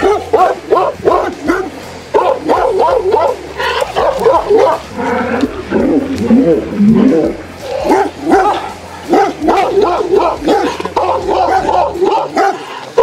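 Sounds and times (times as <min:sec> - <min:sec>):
dog barking aggressively: 0:00.0 - 0:05.0, 0:07.6 - 0:13.0.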